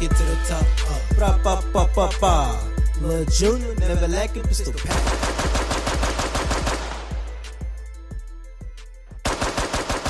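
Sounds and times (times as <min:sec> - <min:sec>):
deep bass beat: 0:00.0 - 0:10.0
machine-gun bursts: 0:04.9 - 0:06.9, 0:09.3 - 0:10.0.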